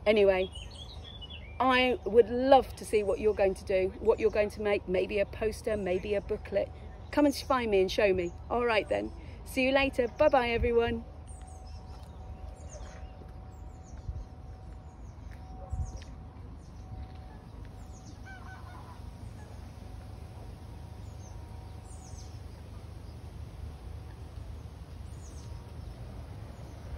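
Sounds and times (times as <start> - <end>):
low wind rumble: 0.0 - 26.9
goose honking: 18.2 - 19.7
small birds chirping: 20.4 - 26.9.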